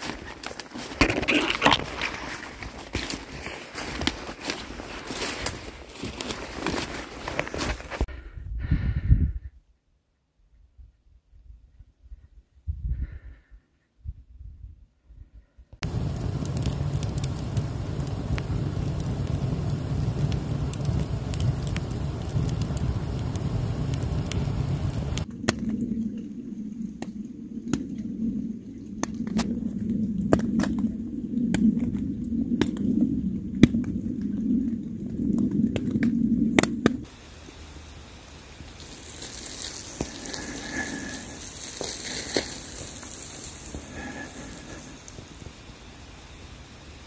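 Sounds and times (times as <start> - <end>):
fire crackling and popping: 0.0 - 8.1, 15.8 - 47.0
outdoor hiss: 15.8 - 25.3, 37.1 - 47.0
low steady rumble: 15.8 - 39.2.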